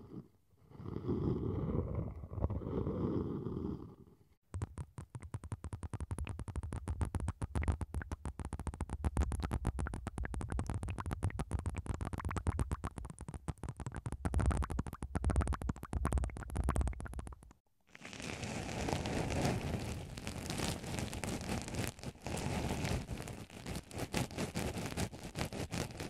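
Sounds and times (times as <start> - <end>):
syringes crackling wet clicks: 4.6 - 17.6.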